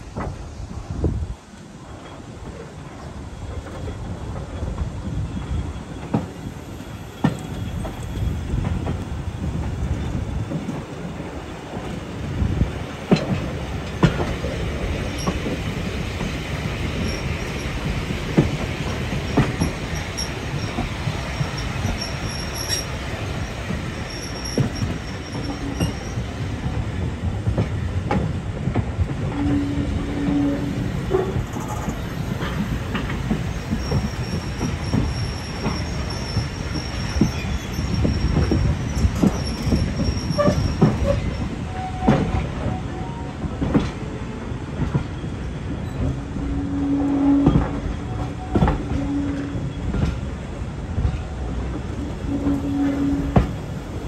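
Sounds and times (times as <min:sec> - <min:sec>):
railway carriage rumbling: 0:00.0 - 0:54.0
faint high wheel squeals: 0:17.0 - 0:17.9, 0:19.2 - 0:26.3, 0:29.4 - 0:43.3.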